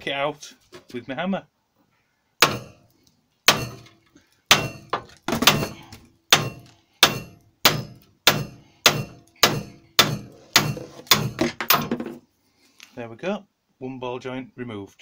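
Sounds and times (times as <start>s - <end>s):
hammer striking steel socket: 6.4s - 11.9s.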